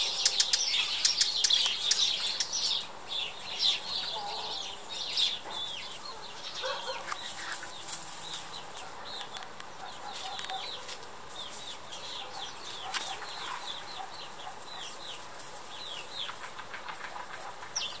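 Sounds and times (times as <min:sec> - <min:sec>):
small birds chirping: 0:00.0 - 0:18.0
hen clucking: 0:16.2 - 0:18.0.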